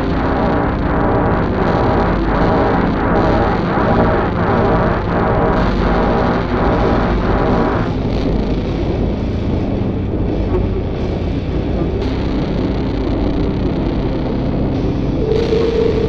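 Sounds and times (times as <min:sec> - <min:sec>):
dense low rumble: 0:00.0 - 0:16.0
faint steady tones: 0:10.0 - 0:16.0
low held tone: 0:15.1 - 0:16.0
pitched synth notes: 0:15.2 - 0:16.0.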